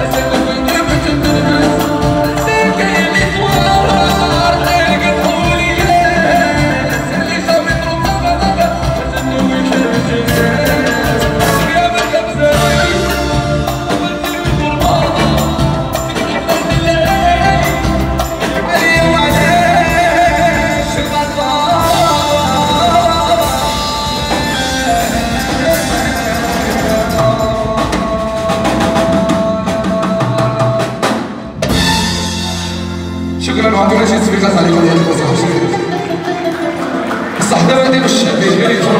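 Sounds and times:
man singing into microphone: 0.0s - 32.0s, 33.4s - 38.9s
drum kit and hand drums beat: 0.0s - 38.9s.

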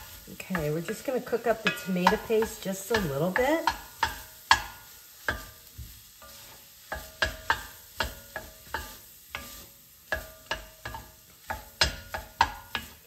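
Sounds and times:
faint sizzle: 0.0s - 13.0s
wooden spatula scraping pot: 0.0s - 13.0s
spatula knocking against pot: 1.6s - 5.5s, 10.1s - 13.0s.

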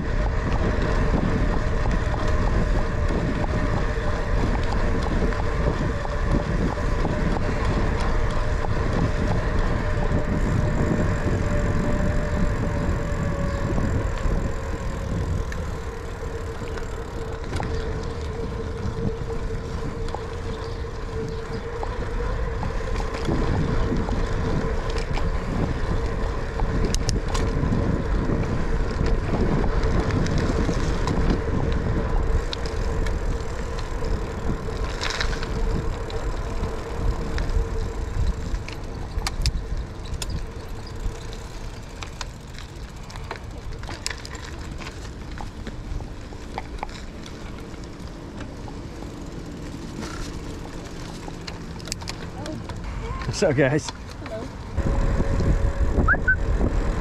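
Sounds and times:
bicycle tyres rolling on asphalt: 0.0s - 57.0s
wind buffeting microphone: 0.0s - 57.0s.

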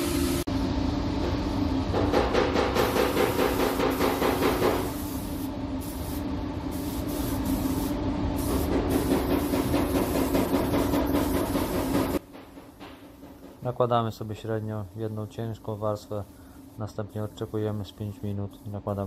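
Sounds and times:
steady low hum: 0.0s - 19.0s
spray gun hissing: 2.8s - 12.2s, 14.3s - 19.0s.

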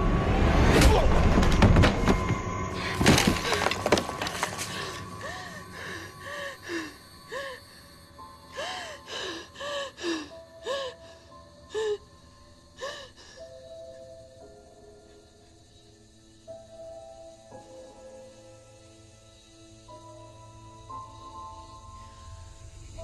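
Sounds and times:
woman sobbing and whimpering: 4.6s - 7.8s, 8.5s - 12.1s.

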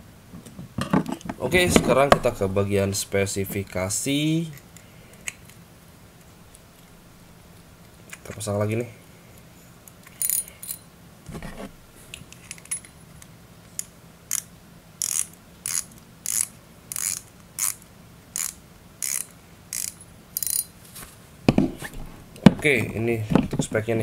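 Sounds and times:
fishing reel handling clicks: 10.0s - 10.8s, 13.8s - 17.8s, 18.4s - 20.7s.

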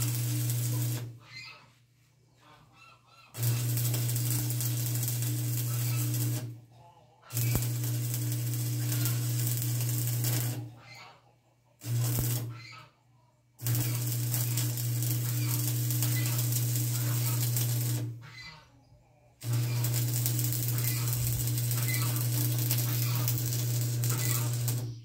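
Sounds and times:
electric arc welding buzz: 0.0s - 1.1s, 3.4s - 6.6s, 7.3s - 10.7s, 11.8s - 12.6s, 13.6s - 18.2s, 19.4s - 25.0s.

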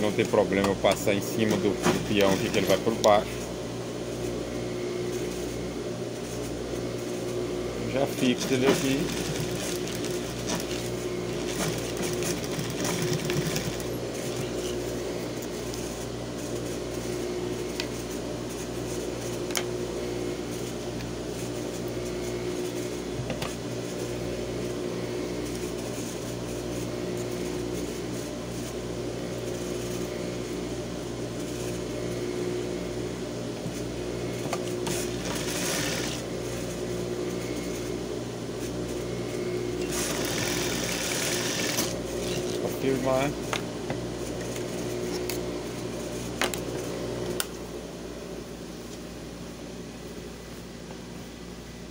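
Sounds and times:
sewing machine running: 7.9s - 14.9s, 34.8s - 36.7s, 39.8s - 42.6s.

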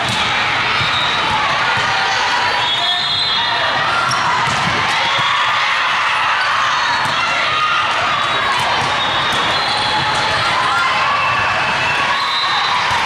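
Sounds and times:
volleyballs struck and bouncing: 0.0s - 2.1s, 3.6s - 6.2s, 6.9s - 11.9s, 12.8s - 13.0s
hubbub of voices echoing: 0.0s - 13.0s.

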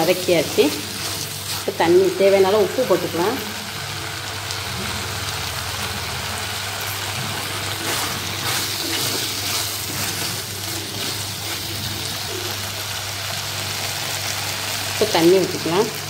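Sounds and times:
spoon stirring in a pot: 0.0s - 2.4s, 7.0s - 12.6s
food sizzling in a pot: 0.0s - 16.0s.

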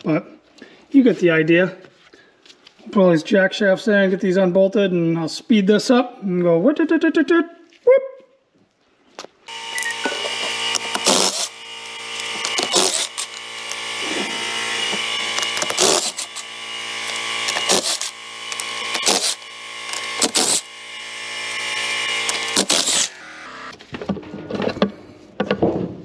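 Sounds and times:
ratchet buzzing: 9.5s - 23.7s.

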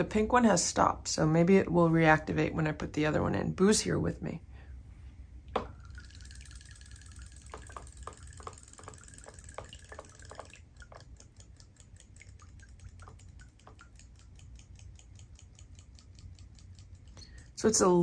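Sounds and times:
steady mechanical ticking: 6.1s - 18.0s.

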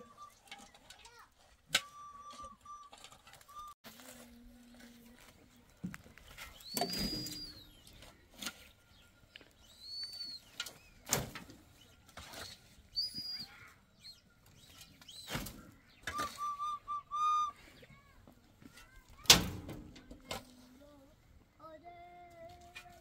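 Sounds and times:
high whistling tones: 0.0s - 0.9s, 1.7s - 3.8s, 6.4s - 8.0s, 9.6s - 11.0s, 12.2s - 15.4s, 16.0s - 17.9s.

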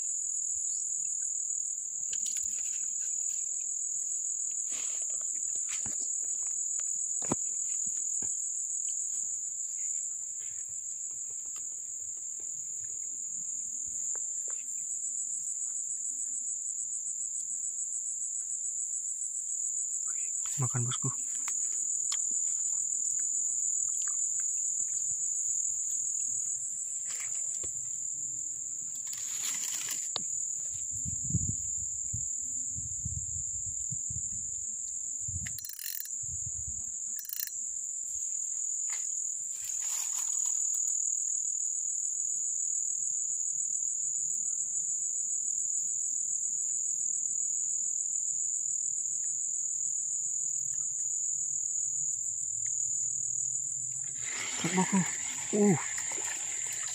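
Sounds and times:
insect chorus trilling: 0.0s - 56.9s
rustling through grass: 29.0s - 30.2s, 39.5s - 40.6s.

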